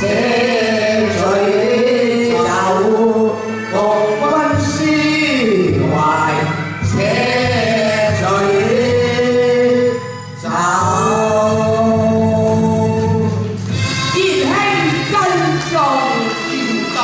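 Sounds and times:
men singing a duet: 0:00.0 - 0:13.6.

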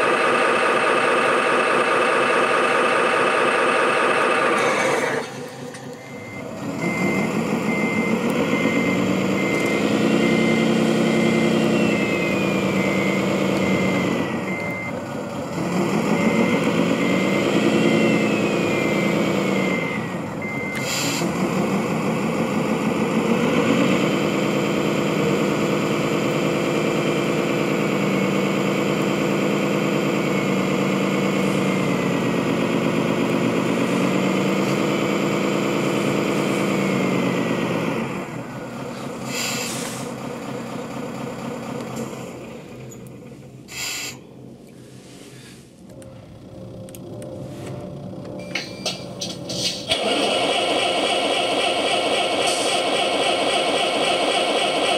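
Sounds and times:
simulated truck diesel engine: 0:00.0 - 0:54.9
reversing beeper: 0:04.6 - 0:21.4, 0:29.6 - 0:32.3.

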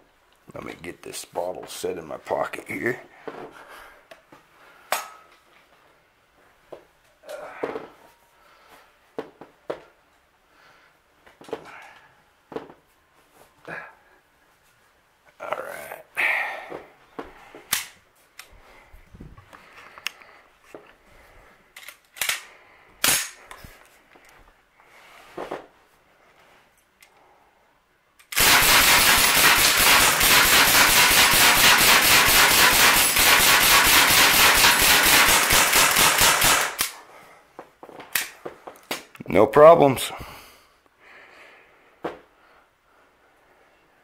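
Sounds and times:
air rifle rapid shots: 0:28.3 - 0:37.0.

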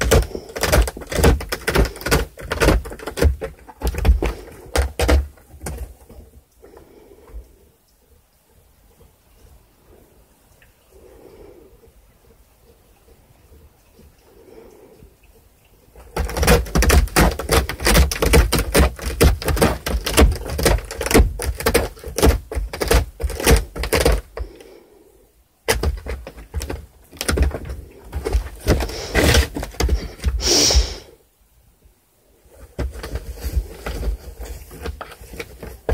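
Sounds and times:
cat scratching cardboard: 0:00.0 - 0:06.9, 0:16.0 - 0:24.8, 0:25.6 - 0:31.1, 0:32.5 - 0:35.9.

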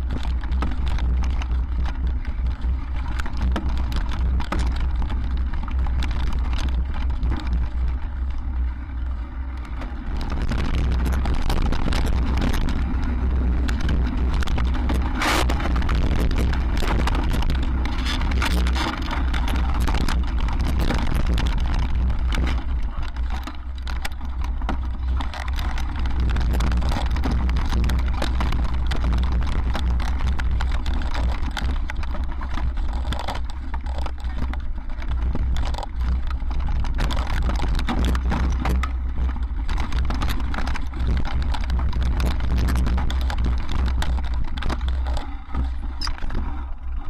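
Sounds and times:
bike rattling on stony trail: 0:00.0 - 0:47.0
wind buffeting microphone: 0:00.0 - 0:47.0.

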